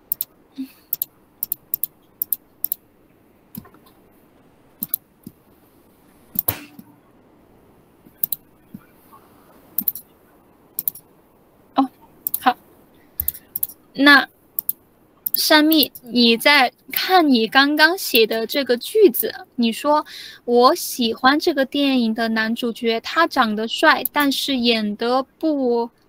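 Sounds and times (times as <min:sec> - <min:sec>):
computer mouse and keyboard clicks: 0:00.0 - 0:00.3, 0:00.9 - 0:02.8, 0:04.8 - 0:05.4, 0:06.3 - 0:06.9, 0:08.1 - 0:08.9, 0:09.8 - 0:10.1, 0:10.8 - 0:11.1, 0:12.2 - 0:12.5, 0:13.2 - 0:13.8, 0:14.6 - 0:16.1, 0:24.0 - 0:24.3.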